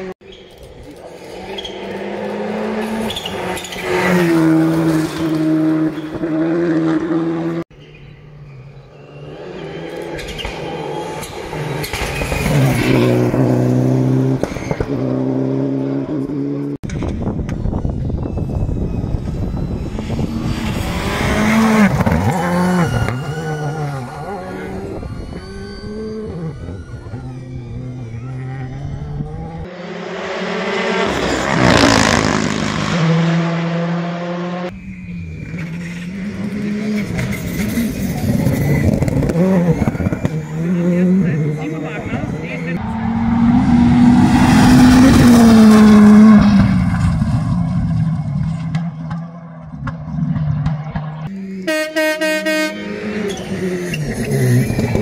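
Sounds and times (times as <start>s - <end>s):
rally car engine at full throttle: 0.8s - 55.0s
gear changes: 34.7s - 51.3s.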